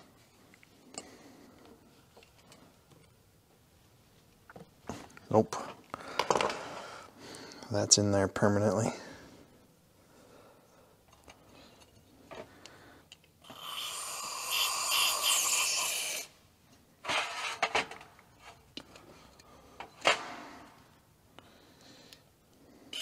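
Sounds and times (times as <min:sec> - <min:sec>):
aerosol spray hiss: 0:13.6 - 0:16.3.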